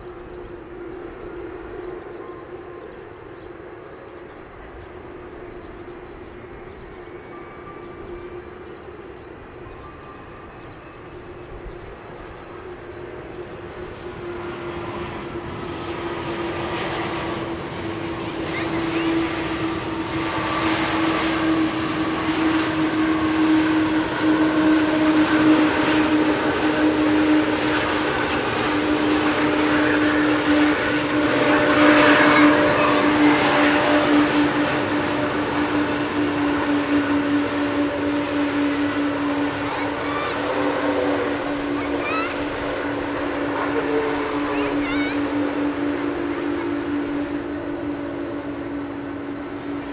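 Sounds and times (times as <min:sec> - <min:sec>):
jet engines whining: 0:00.0 - 0:49.9.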